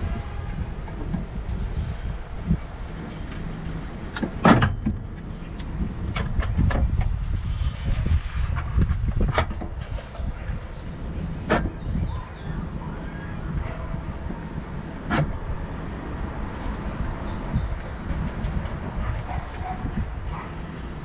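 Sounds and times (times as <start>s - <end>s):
steady low rumble: 0.0s - 21.0s
metal rail scraping car underbody: 2.8s - 12.0s, 13.6s - 21.0s.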